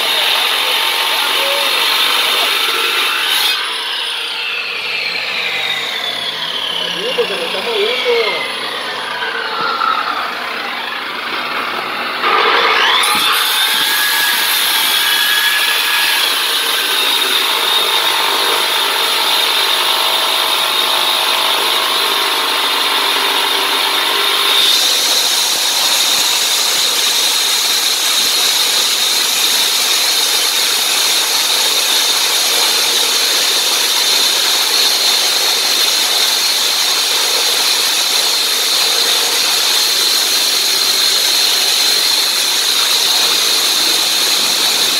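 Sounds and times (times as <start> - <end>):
power cutter cutting concrete: 0.0 - 44.9
high whine: 4.6 - 13.1.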